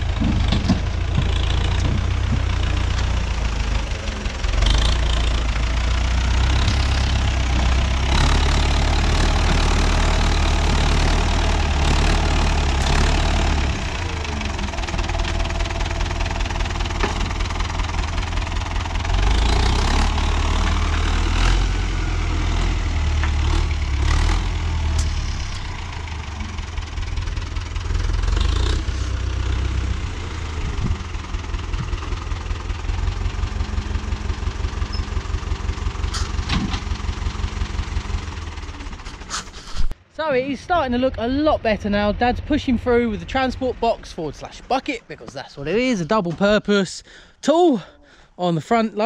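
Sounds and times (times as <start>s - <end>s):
tractor diesel engine revving: 0.0s - 48.1s.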